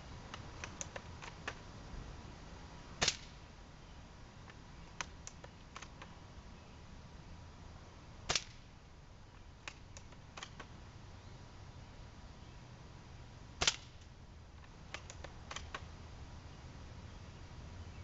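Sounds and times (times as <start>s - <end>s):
airsoft rifle shot crack: 3.0s - 3.4s, 8.3s - 8.7s, 13.6s - 14.0s
rifle bolt clicks: 9.6s - 10.7s, 14.6s - 15.9s.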